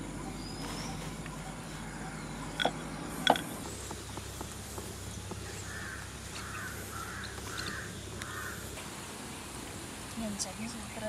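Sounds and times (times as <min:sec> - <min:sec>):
crow cawing: 0:05.6 - 0:08.7.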